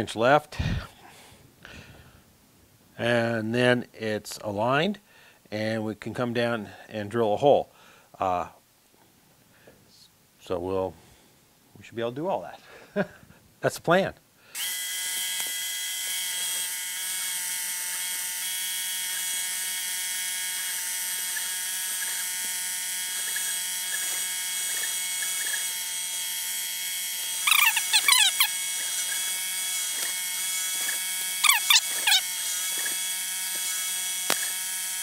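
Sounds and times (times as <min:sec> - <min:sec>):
milling machine spindle whine: 0:14.6 - 0:35.0
high squeaky chirps: 0:27.4 - 0:29.3, 0:31.4 - 0:32.3
click: 0:34.3 - 0:34.5.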